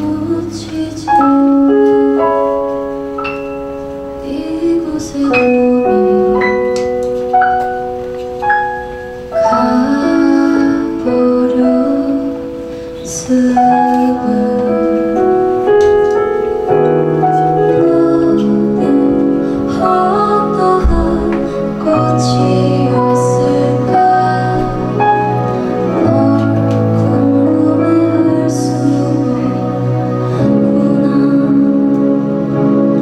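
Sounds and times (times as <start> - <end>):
woman singing into microphone: 0.0 - 2.2, 4.2 - 6.9, 9.4 - 15.8, 17.6 - 32.4.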